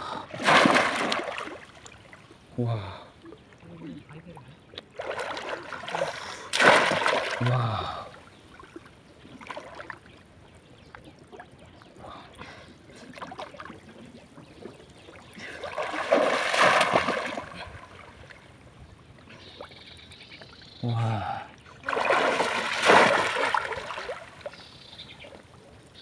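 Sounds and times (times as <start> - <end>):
water lapping: 0.0 - 25.9
water splashing: 0.3 - 2.5, 3.5 - 10.2, 12.9 - 18.7, 21.8 - 25.6.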